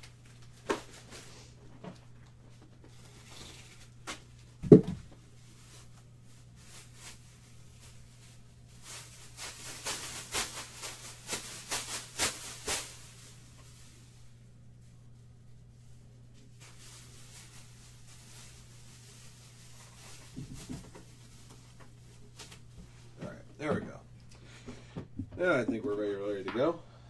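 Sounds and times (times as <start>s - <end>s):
rustling and crackling packaging: 0.0s - 23.3s
steady low hum: 3.8s - 27.0s
heavy thump: 4.6s - 5.1s.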